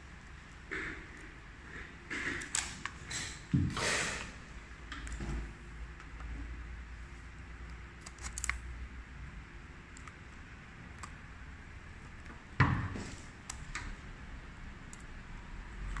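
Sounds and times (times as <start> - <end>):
tape roll clicks and rustles: 8.0 - 8.7.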